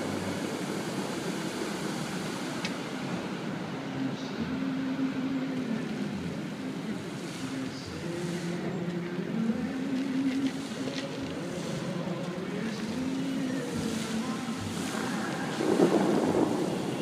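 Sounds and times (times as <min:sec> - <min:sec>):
distant music over loudspeakers: 0:00.0 - 0:17.0
wind: 0:00.0 - 0:17.0
water spray hissing: 0:10.1 - 0:17.0.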